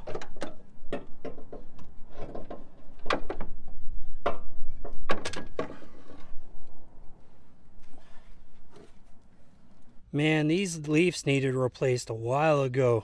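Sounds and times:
metal clanks and knocks: 0.0 - 6.4.

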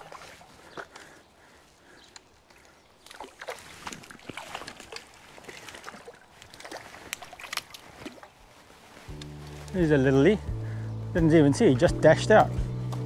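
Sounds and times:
trout splashing in shallow water: 0.0 - 9.8.

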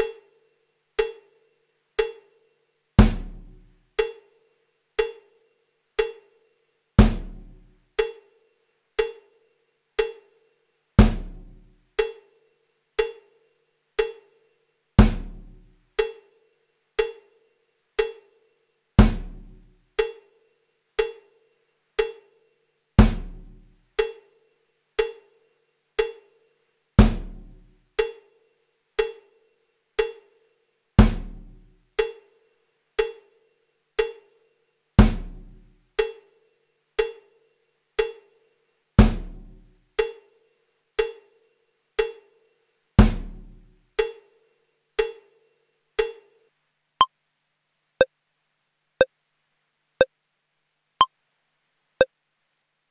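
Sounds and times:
deep drum hit and boom: 3.0 - 3.6, 7.0 - 7.4, 11.0 - 11.4, 15.0 - 15.4.

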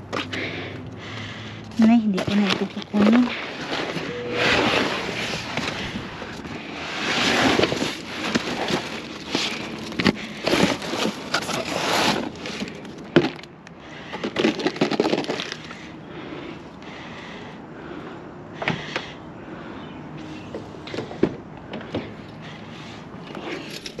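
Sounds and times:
cardboard and paper rustling: 1.8 - 13.5, 14.1 - 15.9.

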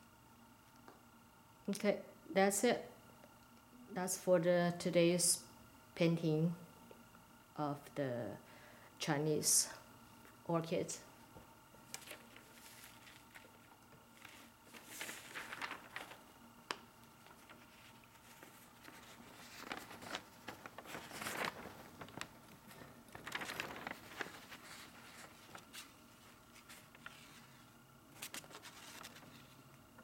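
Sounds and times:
paper rustling: 11.9 - 29.6.

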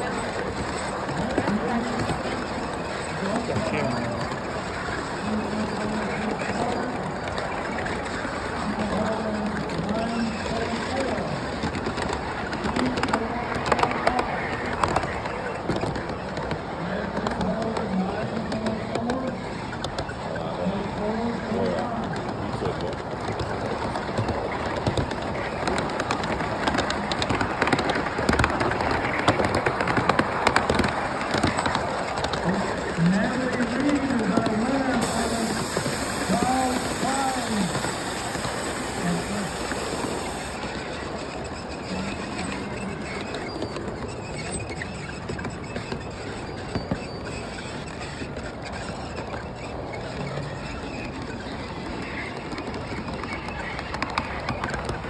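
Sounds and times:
model train wheels clicking: 0.0 - 55.0.

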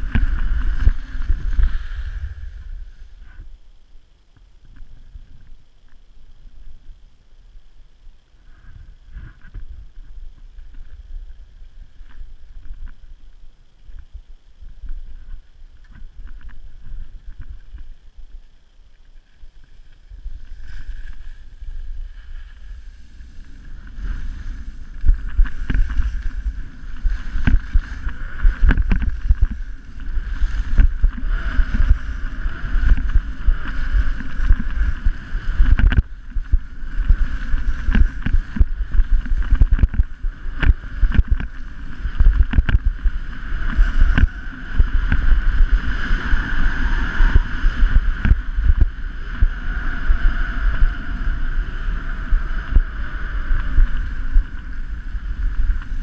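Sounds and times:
skis scraping over snow: 0.0 - 3.5, 14.6 - 56.0
wind rumble on microphone: 0.0 - 56.0.

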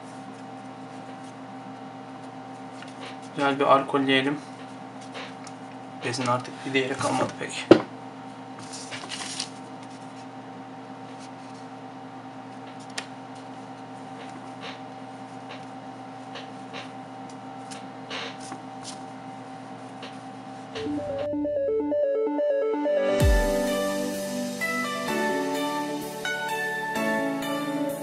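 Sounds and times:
electrical hum: 9.5 - 25.0.

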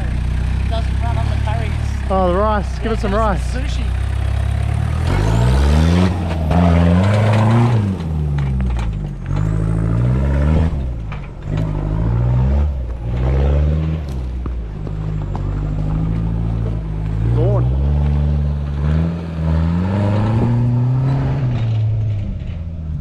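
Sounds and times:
diesel engine revving: 0.0 - 23.0.

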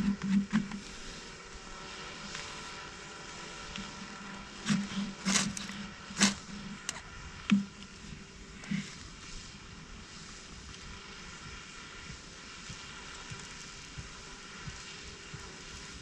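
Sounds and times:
low drone: 0.0 - 16.0
knife scraping fire steel: 4.6 - 7.0.

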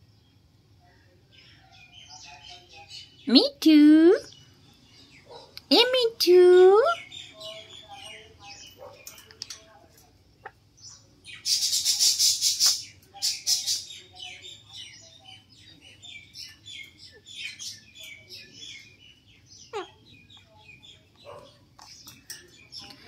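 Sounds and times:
parakeets chattering chirps: 1.4 - 23.0
parakeets screeching: 17.0 - 20.4.

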